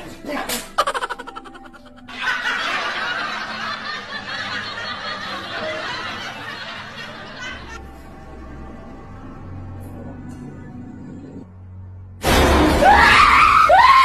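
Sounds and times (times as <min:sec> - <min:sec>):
people laughing: 0:00.8 - 0:07.8.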